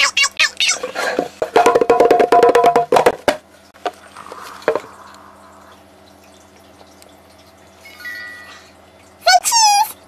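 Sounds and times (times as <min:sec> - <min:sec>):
low room hum: 0:00.0 - 0:10.0
hand drumming: 0:01.5 - 0:03.4.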